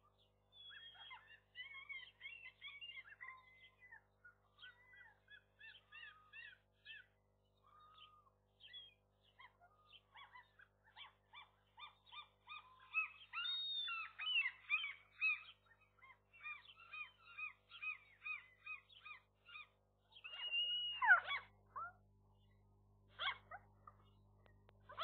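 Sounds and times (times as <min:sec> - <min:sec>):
gulls calling: 0:11.8 - 0:22.0.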